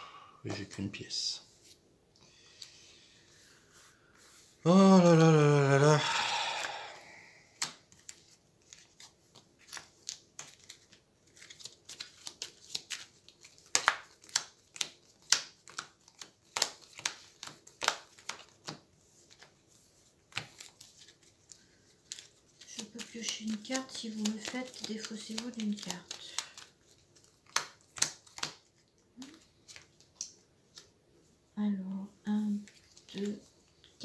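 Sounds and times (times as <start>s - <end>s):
playing cards slapping on table: 7.6s - 10.9s, 11.9s - 18.8s, 22.1s - 26.8s, 27.4s - 28.7s.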